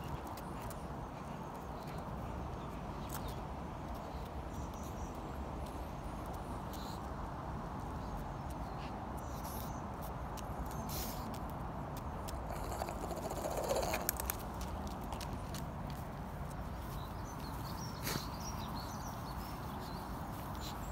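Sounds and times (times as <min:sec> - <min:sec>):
outdoor background rush: 0:00.0 - 0:20.9
dog claws clicking on stone: 0:12.0 - 0:15.7.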